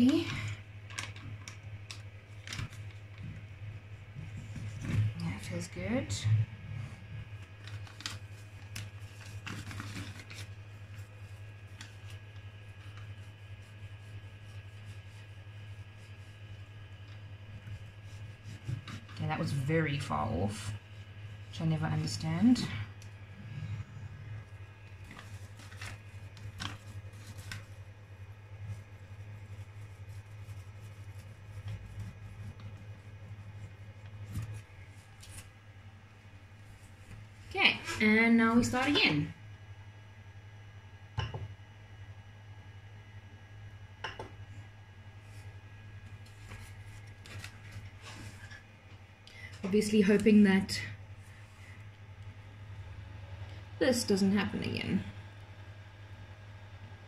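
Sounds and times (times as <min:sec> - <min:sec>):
printer low steady hum: 0:00.0 - 0:57.0
cloth rubbing on plate: 0:28.7 - 0:35.5.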